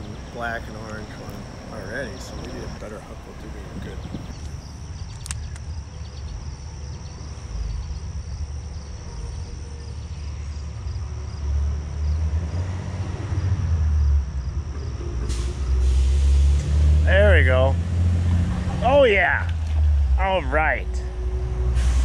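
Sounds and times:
wind buffeting microphone: 0.0s - 5.1s.

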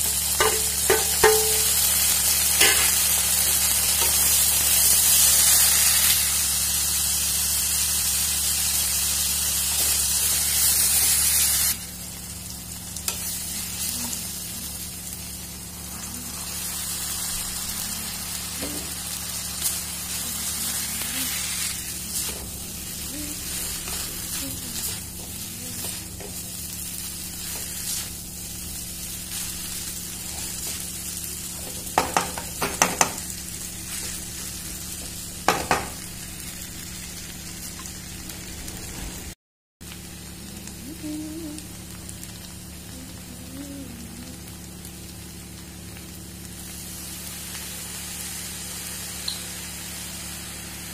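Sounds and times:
vegetables sizzling in a wok: 0.0s - 50.9s
spatula knocking against wok: 0.4s - 1.8s, 31.9s - 33.2s, 35.5s - 36.0s.

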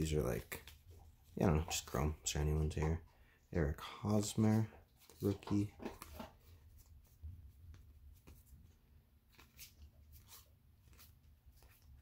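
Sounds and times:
cards flicking and rustling: 5.0s - 12.0s.

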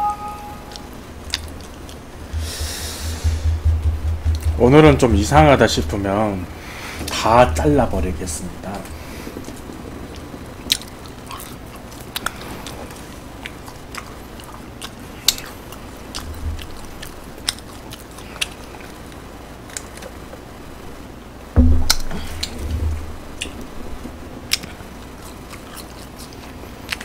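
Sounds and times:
chewing food: 1.2s - 2.1s, 9.3s - 20.3s, 24.5s - 27.0s
loud bump: 2.3s - 5.8s, 21.6s - 23.2s.

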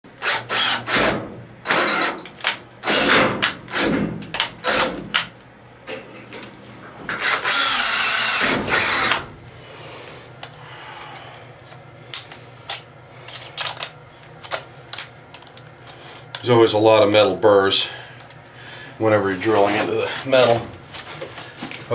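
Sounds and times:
cordless drill drilling into steel: 0.2s - 1.1s, 1.7s - 2.2s, 7.2s - 9.2s.

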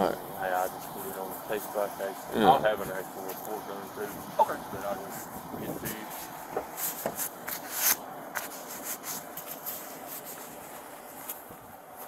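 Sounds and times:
clothing rustling on microphone: 4.1s - 12.0s.

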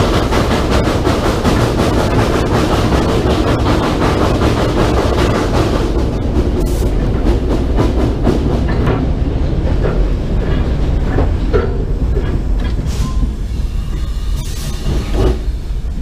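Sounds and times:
steam exhaust chuffing: 0.0s - 10.8s
steam locomotive rumble: 0.0s - 16.0s
wheels clattering on rail: 0.0s - 16.0s.

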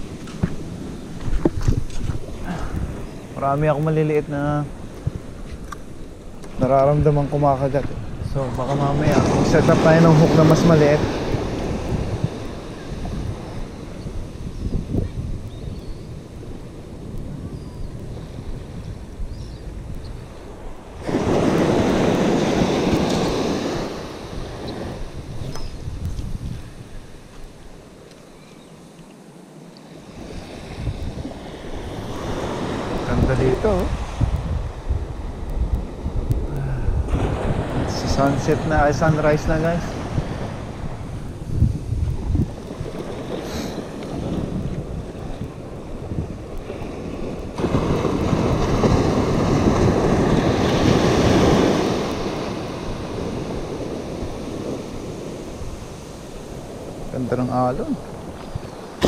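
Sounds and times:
small surf breaking: 0.0s - 14.4s, 20.3s - 27.6s, 42.0s - 59.0s
wind buffeting microphone: 0.0s - 28.0s, 30.0s - 59.0s.

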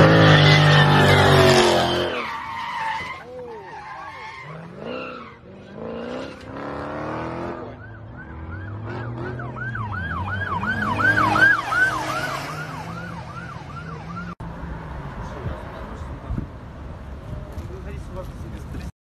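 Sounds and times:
police siren yelping: 7.4s - 14.4s.

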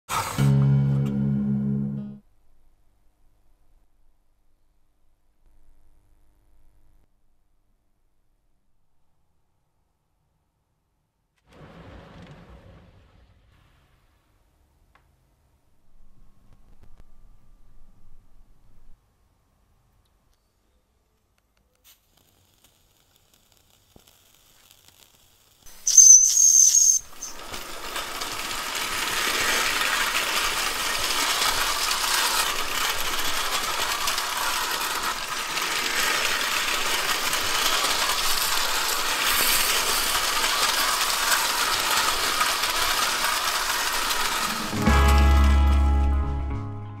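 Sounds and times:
steam hissing: 21.8s - 44.8s
toy train rattling on metal track: 24.1s - 45.5s
shrill steam whistle blast: 25.7s - 27.4s.

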